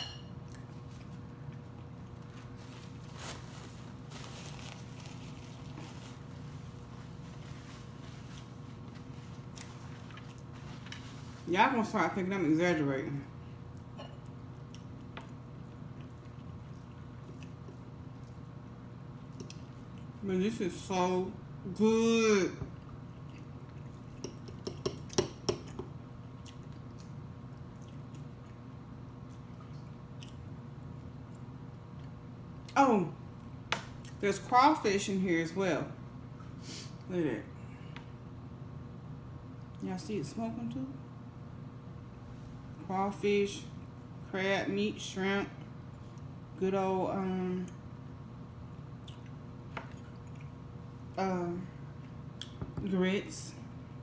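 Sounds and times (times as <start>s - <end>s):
person chewing food: 7.9s - 11.0s, 13.4s - 18.6s, 22.8s - 30.5s, 48.9s - 50.7s.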